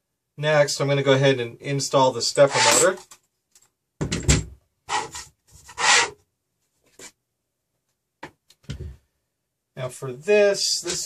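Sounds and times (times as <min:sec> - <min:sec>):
frame scraping on table: 0:04.9 - 0:06.1.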